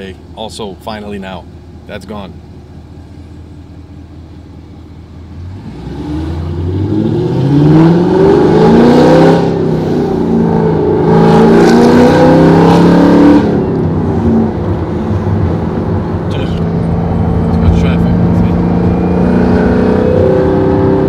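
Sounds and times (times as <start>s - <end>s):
car engine accelerating hard: 5.4s - 21.0s.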